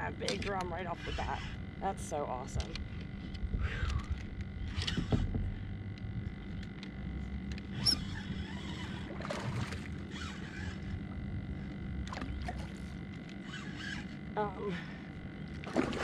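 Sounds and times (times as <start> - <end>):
steady low hum: 0.0 - 16.0
spinning reel winding: 7.5 - 9.1, 10.1 - 11.0, 13.2 - 14.2.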